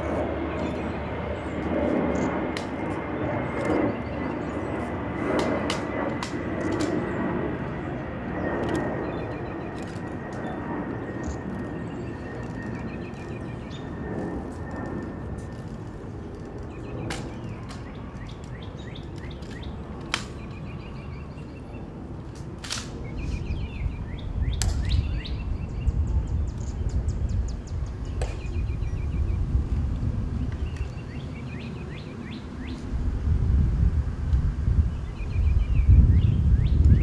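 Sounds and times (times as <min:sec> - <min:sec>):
wind rumble on microphone: 0:00.0 - 0:37.0
birds chirping and singing: 0:06.6 - 0:14.2, 0:16.2 - 0:22.0, 0:23.0 - 0:29.4, 0:30.5 - 0:32.9, 0:34.9 - 0:37.0.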